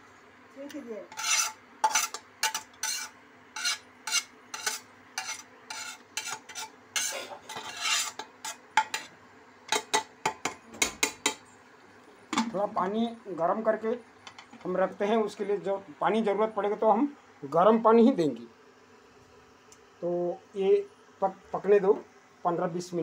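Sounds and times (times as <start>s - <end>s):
faint steady hum: 0.0s - 23.0s
spoon scraping pot: 1.1s - 11.4s.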